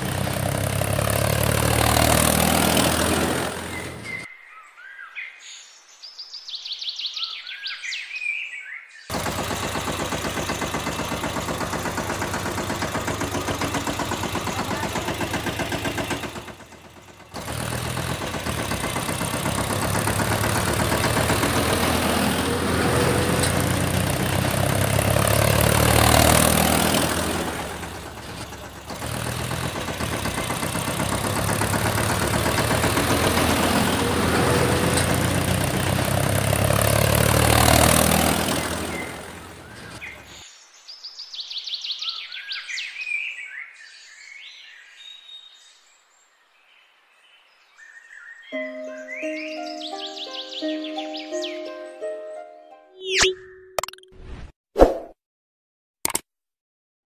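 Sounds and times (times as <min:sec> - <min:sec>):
tractor engine chugging: 0:00.0 - 0:04.3, 0:09.1 - 0:40.4.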